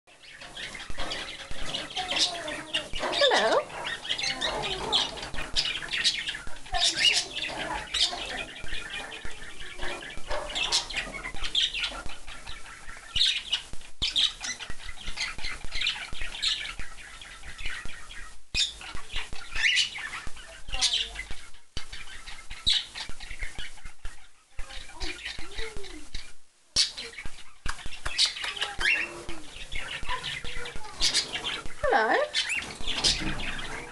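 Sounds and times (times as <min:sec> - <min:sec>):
cockatiels chirping and whistling: 0:26.8 - 0:33.9.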